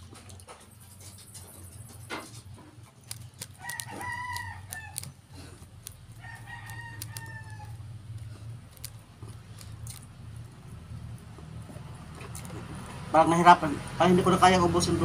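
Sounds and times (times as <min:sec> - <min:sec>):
small clicks: 0:02.9 - 0:10.6.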